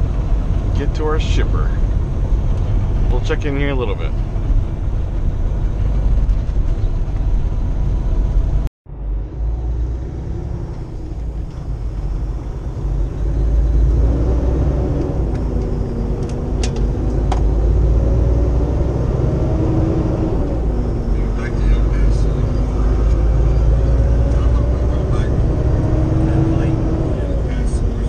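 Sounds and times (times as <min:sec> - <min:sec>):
truck engine and road rumble: 0:00.0 - 0:28.0
wavering engine drone: 0:00.0 - 0:28.0.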